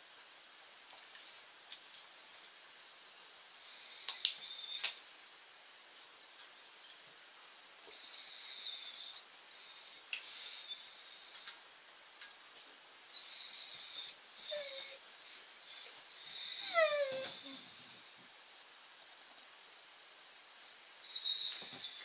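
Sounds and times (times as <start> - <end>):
puppy whining: 1.8 - 2.6, 3.5 - 5.0, 7.9 - 11.6, 13.2 - 18.1, 21.0 - 22.0.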